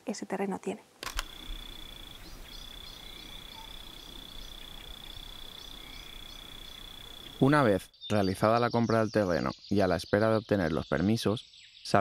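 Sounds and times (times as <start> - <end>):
cricket quick chirps: 1.0 - 7.8
crickets trilling: 1.1 - 10.4.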